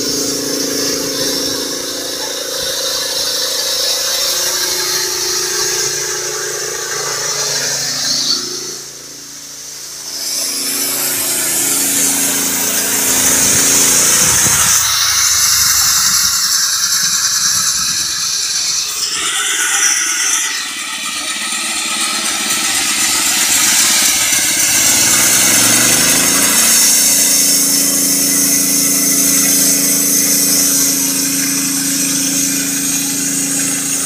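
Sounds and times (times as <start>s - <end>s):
high-pitched saw blade squeal: 0.0s - 9.1s, 9.8s - 34.0s
small petrol engine running: 0.0s - 34.0s.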